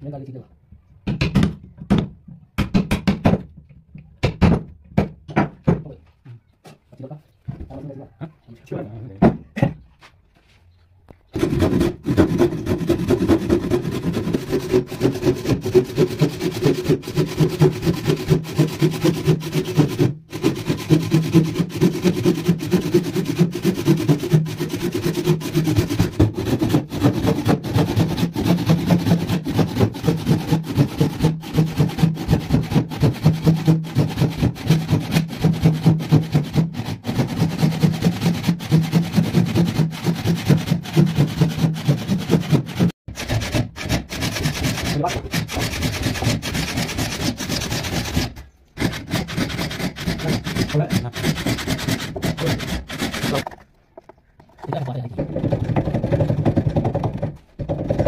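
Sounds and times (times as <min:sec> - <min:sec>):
handsaw ripping through hardwood: 0:11.4 - 0:53.6.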